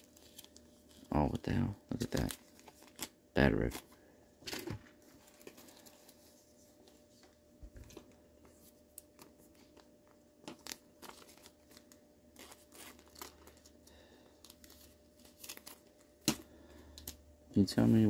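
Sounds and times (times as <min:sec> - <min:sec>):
foil wrapper crinkling: 0:00.0 - 0:03.9, 0:08.9 - 0:17.2
faint hum: 0:00.0 - 0:18.0
trading cards rustling: 0:00.0 - 0:18.0.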